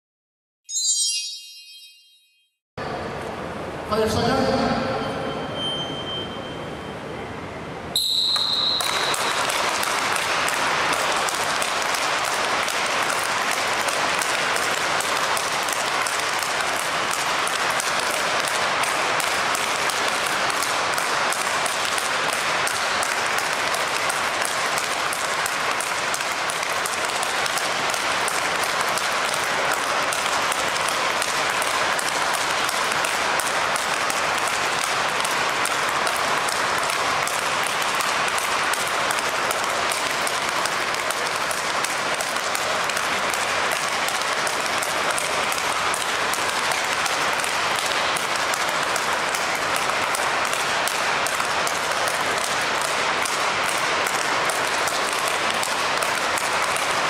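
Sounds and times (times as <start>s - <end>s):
short high beep: 0.7s - 2.6s, 4.8s - 7.0s
people clapping: 8.2s - 57.0s
racket striking speedball: 8.2s - 57.0s.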